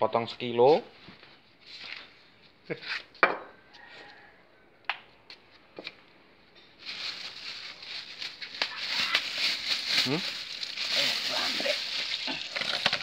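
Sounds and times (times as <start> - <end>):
plastic bag crinkling: 6.8 - 13.0.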